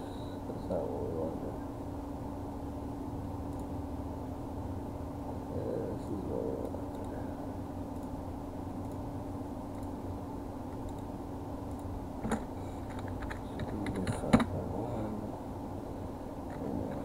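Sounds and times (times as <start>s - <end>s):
steady low hum: 0.0s - 17.0s
keyboard typing: 11.7s - 14.6s.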